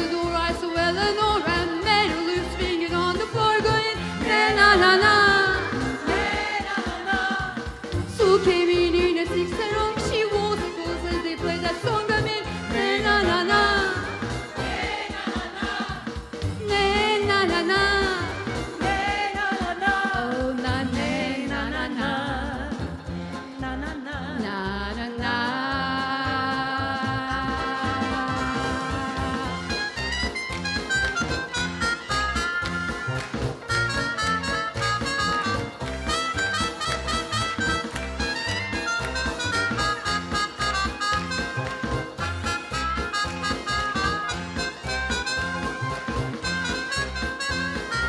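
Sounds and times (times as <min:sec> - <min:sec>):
woman singing lead: 0:00.0 - 0:30.2
keyboard accompaniment: 0:00.0 - 0:48.0
choir singing: 0:04.1 - 0:07.9, 0:12.7 - 0:17.9, 0:18.8 - 0:22.3.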